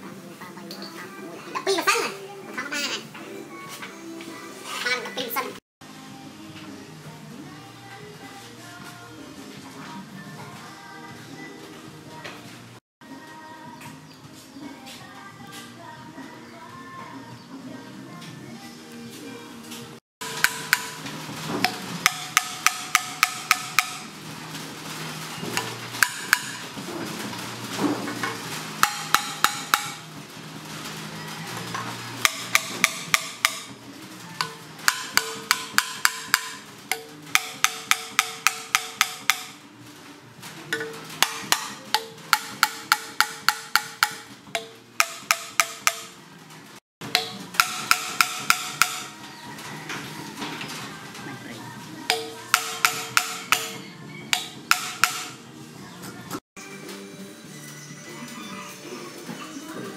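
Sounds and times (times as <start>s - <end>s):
hammer tapping on metal: 20.2s - 24.1s, 25.6s - 26.8s, 28.8s - 30.1s, 32.2s - 33.7s, 34.4s - 39.6s, 40.8s - 46.2s, 47.0s - 49.2s, 52.1s - 55.4s.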